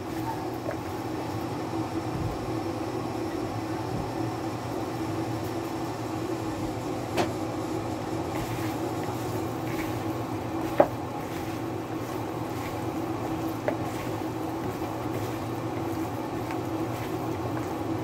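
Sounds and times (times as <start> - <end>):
low mechanical hum: 0.0 - 18.0
chicken wings tossed in plastic bowl: 8.4 - 18.0.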